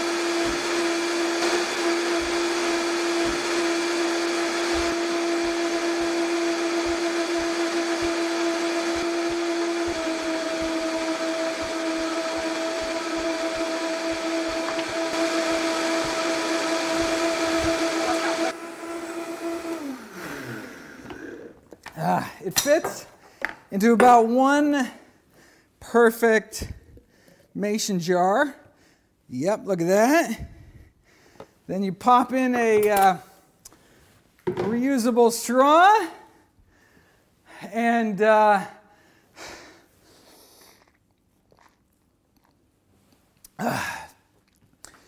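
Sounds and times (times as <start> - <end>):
blender running: 0.0 - 21.7.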